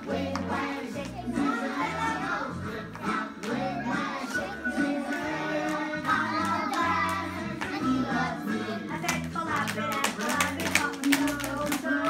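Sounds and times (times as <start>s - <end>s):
child singing: 0.0s - 9.0s.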